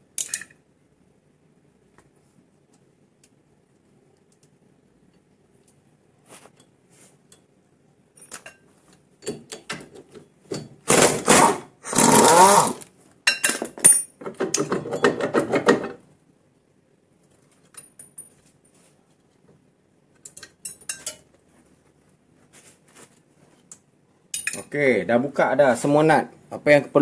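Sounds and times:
whirring tool noise: 10.9s - 12.9s.

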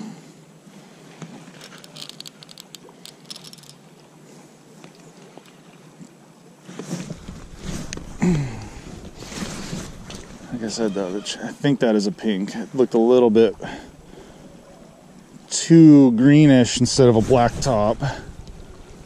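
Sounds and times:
shallow river flowing: 0.0s - 19.0s
fishing reel being cranked: 1.6s - 3.8s.

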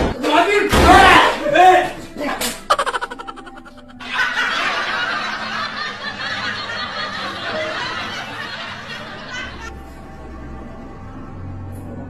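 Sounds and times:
person laughing breathily: 2.7s - 4.1s.

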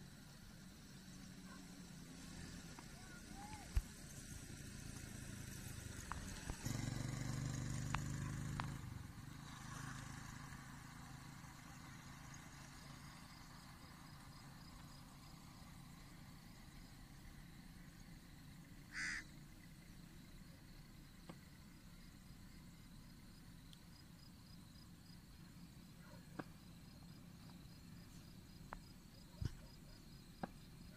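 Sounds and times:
faint outdoor background: 0.0s - 30.9s
passing vehicle engine hum: 0.1s - 19.9s.

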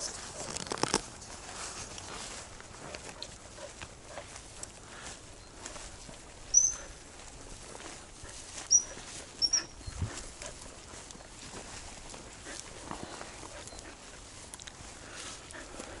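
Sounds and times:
footsteps through wet grass: 0.0s - 16.0s
short high-pitched chirps: 6.5s - 6.9s.

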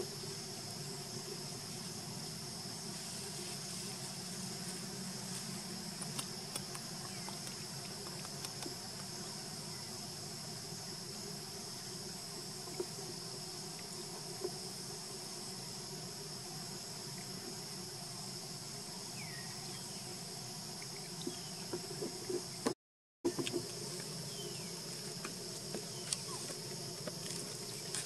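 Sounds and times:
insect chorus drone: 0.0s - 28.0s
faint clicks: 6.0s - 9.1s.

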